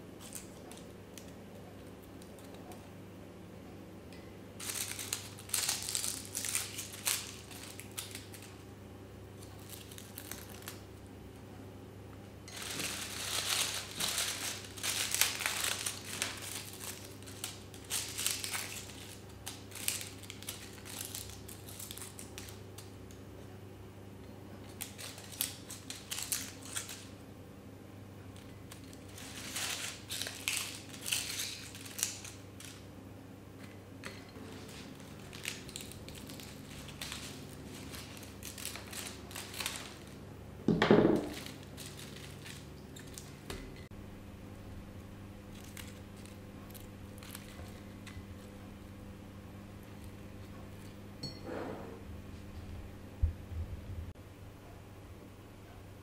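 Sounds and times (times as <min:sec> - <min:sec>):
dried leaves rustling: 0:04.6 - 0:08.7, 0:09.4 - 0:10.9, 0:12.5 - 0:23.0, 0:24.6 - 0:27.2, 0:28.7 - 0:32.9, 0:34.4 - 0:40.3, 0:41.2 - 0:43.8, 0:45.4 - 0:48.6.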